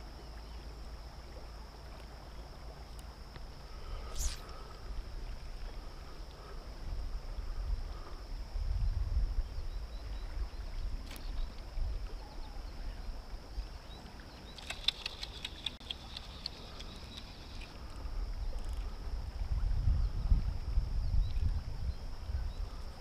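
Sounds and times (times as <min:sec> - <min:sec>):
river current rumble: 0:00.0 - 0:23.0
wind buffeting microphone: 0:06.7 - 0:13.1, 0:17.9 - 0:23.0
sharp clicks: 0:14.5 - 0:17.7.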